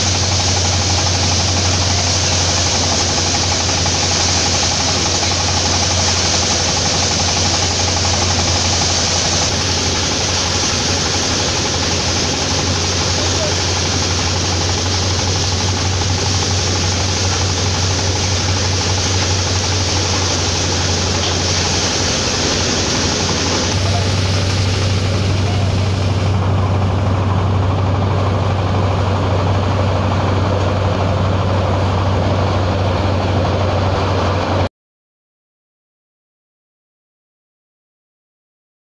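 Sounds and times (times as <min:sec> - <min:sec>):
threshing hiss: 0:00.0 - 0:26.7
threshing machine drone: 0:00.0 - 0:34.7.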